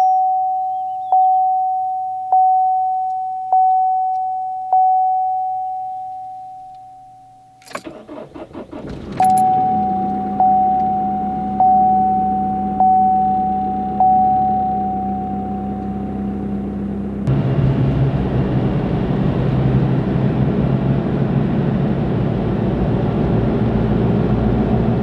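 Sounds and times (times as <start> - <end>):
dashboard warning chime: 0.0 - 17.1
starter cranking: 7.6 - 9.6
car engine idling: 7.6 - 25.0.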